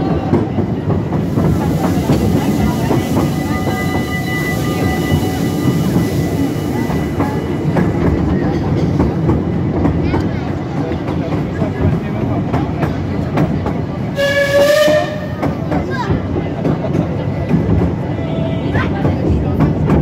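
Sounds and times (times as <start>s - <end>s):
train wheels rumbling and clicking: 0.0s - 20.0s
hiss: 1.2s - 4.0s.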